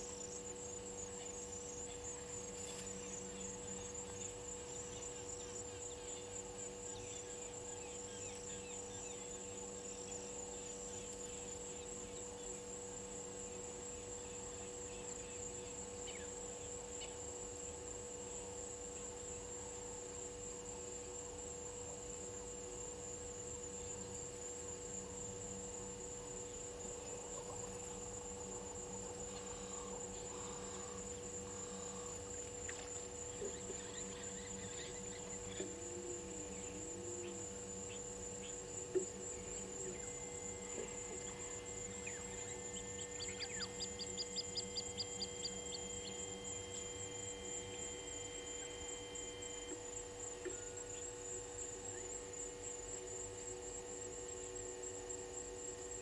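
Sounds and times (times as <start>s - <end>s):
low steady hum: 0.0s - 56.0s
insect trilling: 29.2s - 52.2s.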